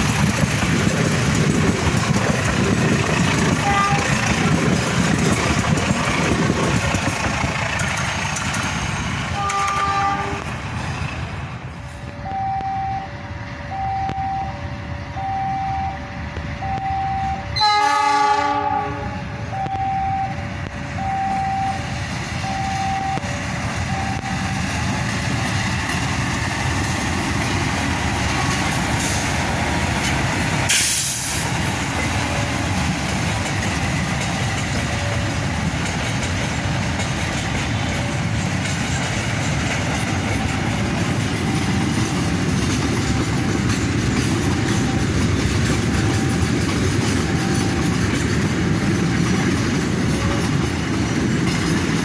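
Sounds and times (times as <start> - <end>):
diesel locomotive engine: 0.0 - 52.0
passenger train rolling past: 0.0 - 52.0
locomotive horn blast: 3.6 - 4.2, 9.3 - 10.5, 12.0 - 21.8
two-note electronic warning tone: 12.2 - 17.8, 19.6 - 20.4, 21.0 - 21.8.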